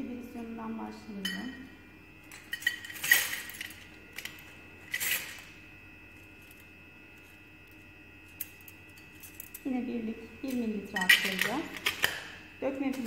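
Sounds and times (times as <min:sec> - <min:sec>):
glass pipettes clinking on metal: 0:02.3 - 0:05.4, 0:10.5 - 0:12.1.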